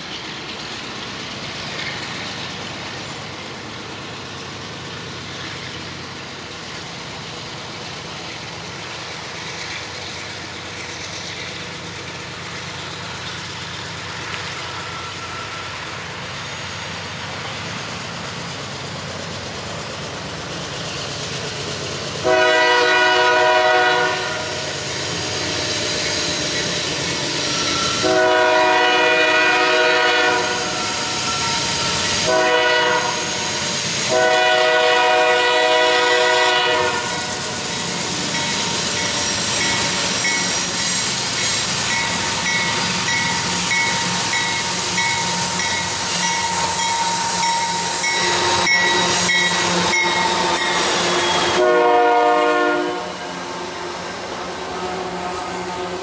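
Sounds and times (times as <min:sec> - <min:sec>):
train rumble: 0:00.0 - 0:56.0
locomotive horn blasts: 0:22.2 - 0:24.6, 0:28.0 - 0:30.8, 0:32.2 - 0:33.3, 0:34.1 - 0:37.4, 0:51.3 - 0:53.3.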